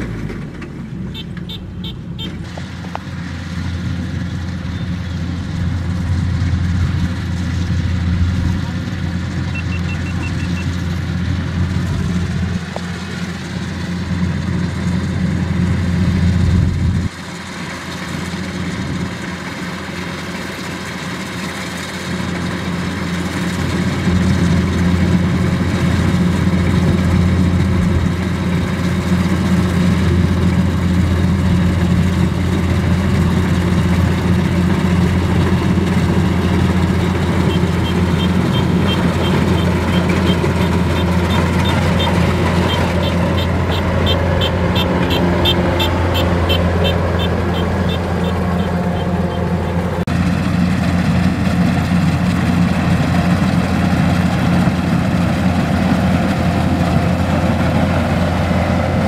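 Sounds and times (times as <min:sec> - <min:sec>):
combine harvester engine running: 0:00.0 - 0:59.0
faint rapid high beeps: 0:09.5 - 0:10.7.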